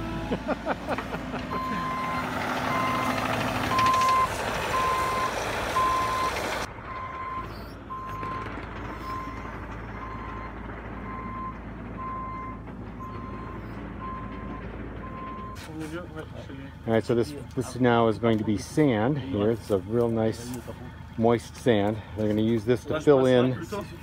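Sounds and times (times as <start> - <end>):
excavator engine running: 0.0 - 24.0
reversing alarm beeping: 1.5 - 9.4, 10.0 - 15.6.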